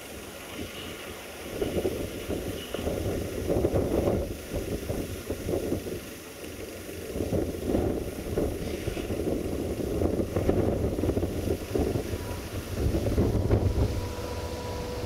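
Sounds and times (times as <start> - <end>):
wind buffeting microphone: 1.5 - 6.2, 7.0 - 15.0
locomotive rumble: 6.8 - 15.0.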